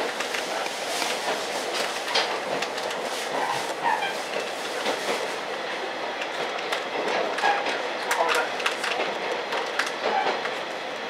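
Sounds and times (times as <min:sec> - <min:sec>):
rumble of wheels on rail: 0:00.0 - 0:11.0
wheels clicking over rail joints: 0:06.2 - 0:10.6.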